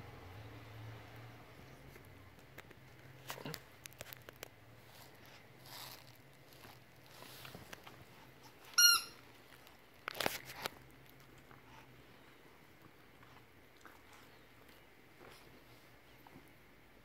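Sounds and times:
dog squeaky toy squeak: 8.7s - 9.2s.

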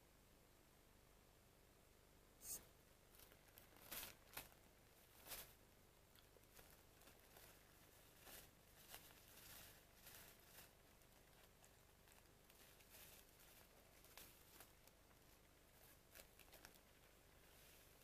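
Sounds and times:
paper tea bag rustling: 3.2s - 5.6s, 6.4s - 18.0s.

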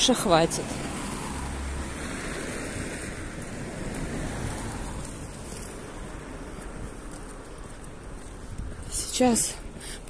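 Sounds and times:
road traffic: 0.0s - 10.0s
wind rumbling on microphone: 0.0s - 10.0s.

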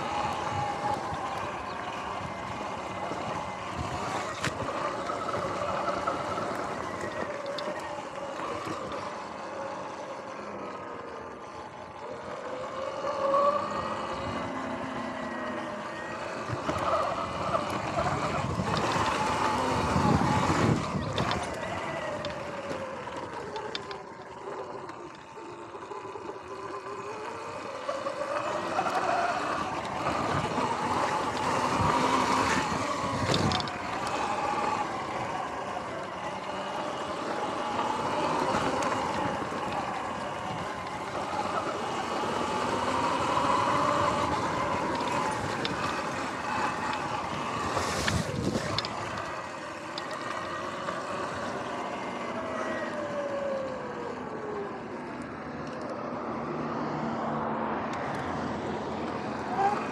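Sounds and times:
electric motor whining: 0.0s - 59.9s
wind: 0.0s - 59.9s
tyre noise: 12.7s - 25.4s, 26.8s - 53.3s.

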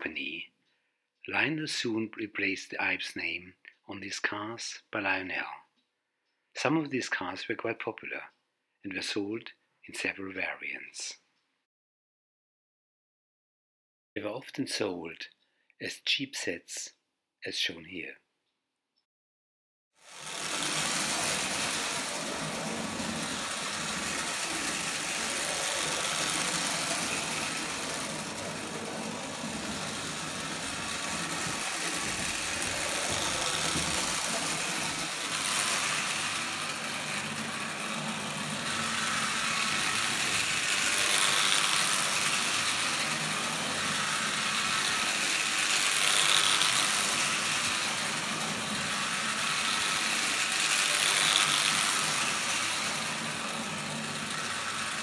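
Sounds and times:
toy train motor whir: 20.0s - 55.0s
toy train wheel rattle: 20.0s - 55.0s.

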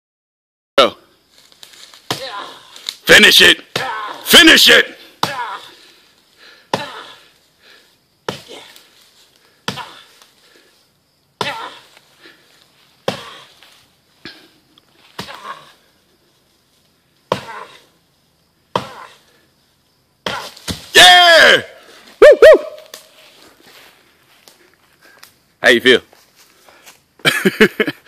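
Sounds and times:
axe chopping wood: 2.1s - 2.5s, 3.7s - 4.2s, 5.2s - 5.6s, 6.7s - 7.1s, 8.3s - 8.6s, 9.6s - 10.0s, 11.4s - 11.8s, 13.0s - 13.4s, 15.2s - 15.6s, 17.3s - 17.8s, 18.7s - 19.1s, 20.2s - 21.1s.

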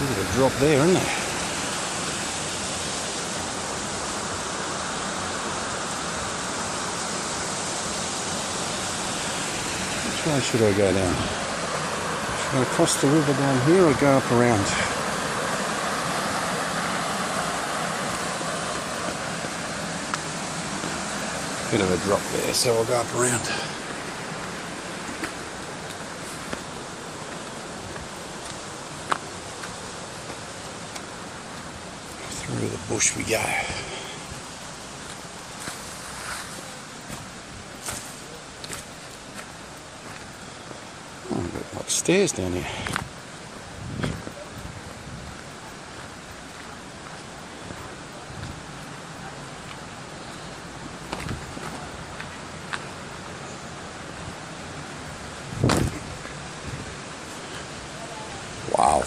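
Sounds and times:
small waterfall rushing: 0.0s - 59.0s.

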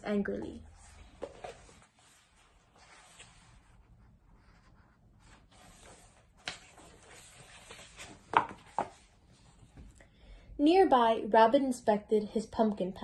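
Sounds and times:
paper rustling: 1.0s - 3.8s, 4.5s - 9.7s.

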